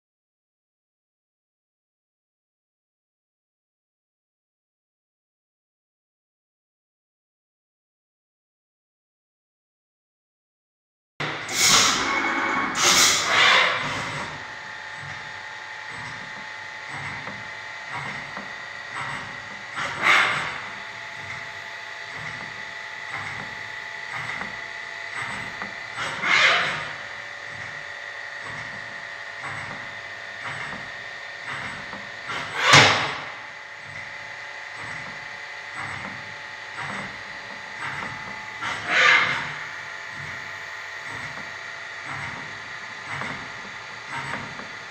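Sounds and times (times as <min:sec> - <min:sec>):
loud burst of noise: 0:11.2 - 0:14.5
machining centre high whine: 0:11.2 - 0:16.0
machining centre whine: 0:11.2 - 0:44.9.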